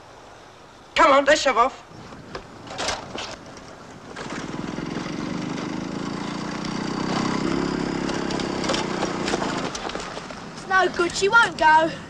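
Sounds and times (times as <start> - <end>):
go-kart engine turning over: 2.1 - 11.2.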